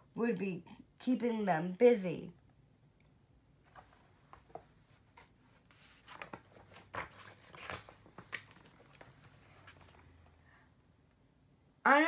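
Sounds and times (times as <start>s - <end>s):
book pages turning: 3.6s - 10.3s
paper rustling and rubbing: 3.7s - 10.2s.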